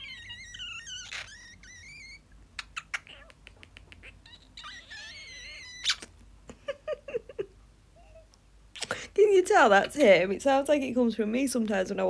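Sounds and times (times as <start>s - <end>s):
cockatiel kissing smacks and clicks: 0.8s - 1.6s, 2.6s - 4.2s, 5.7s - 6.2s, 8.8s - 9.0s.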